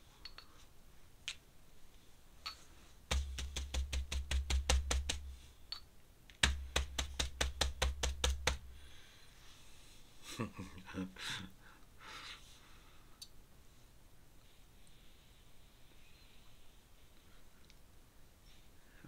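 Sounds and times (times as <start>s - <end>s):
brush tapping on paper: 3.1s - 5.5s, 6.3s - 8.8s.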